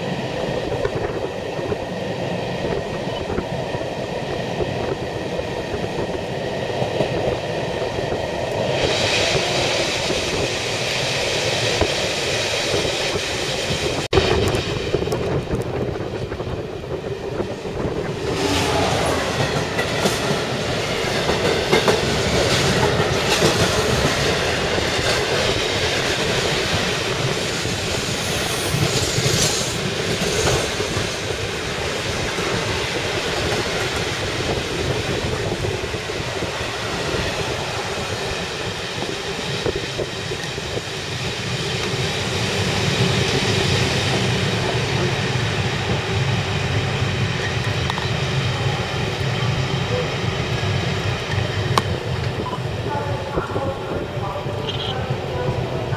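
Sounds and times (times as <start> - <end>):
train rumbling: 0.0 - 55.9.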